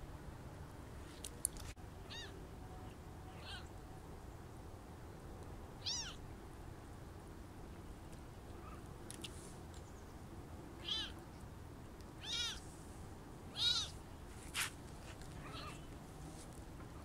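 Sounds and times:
kittens mewing: 2.1 - 2.4, 3.3 - 3.7, 5.8 - 6.2, 10.8 - 11.2, 12.2 - 12.6, 13.5 - 14.0, 15.4 - 15.9.

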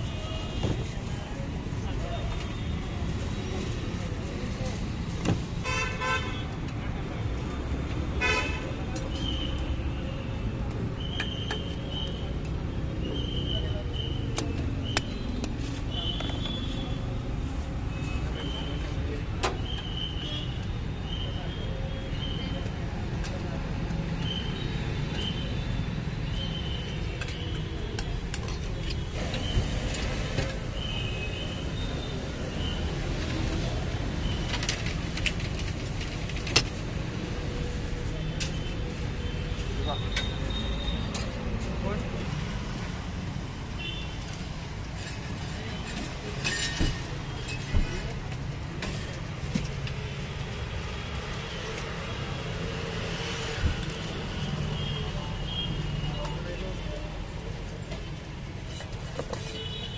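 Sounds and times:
street traffic rumble: 0.0 - 59.9.

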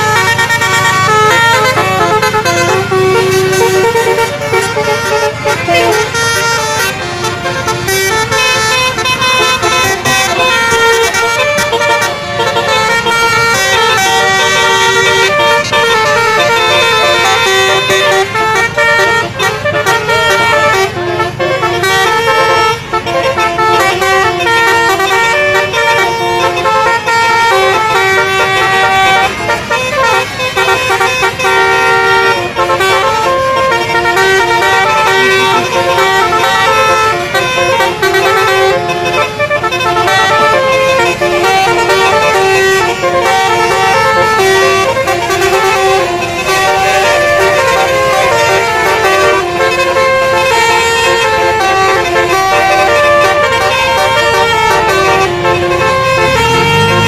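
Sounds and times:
bus air horns playing melody: 0.0 - 57.0.

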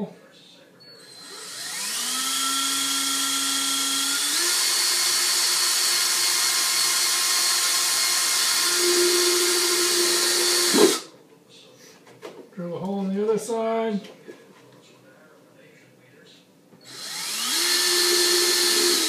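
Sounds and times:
cordless drill whining: 1.0 - 11.0, 16.8 - 19.0.

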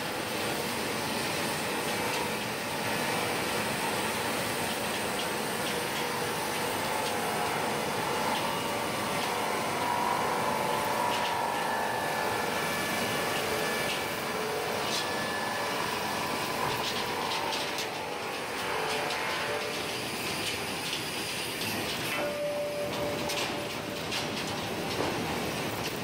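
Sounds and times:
sawmill saw cutting timber: 0.0 - 25.9
faint machine whine: 0.0 - 26.0.

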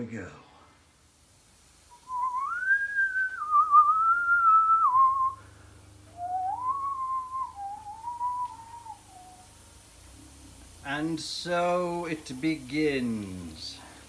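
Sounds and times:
person whistling a tune: 2.0 - 5.4, 6.1 - 9.5.

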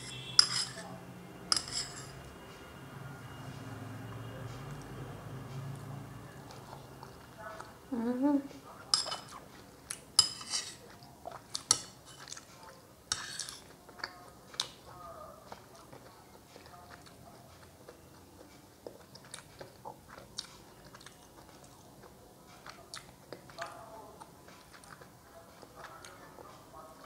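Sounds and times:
person chewing with mouth clicks: 15.5 - 26.5.

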